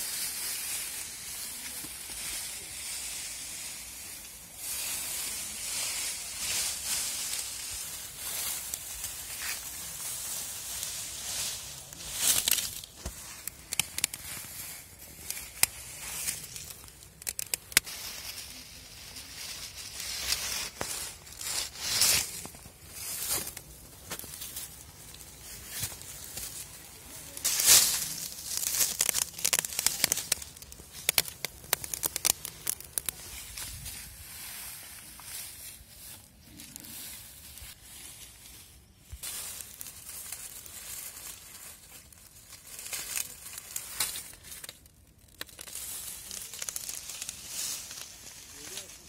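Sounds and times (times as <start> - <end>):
sharp snaps and crackles: 0.0 - 34.1, 39.1 - 49.0
dry plant fibre rustling and crunching: 0.0 - 49.0.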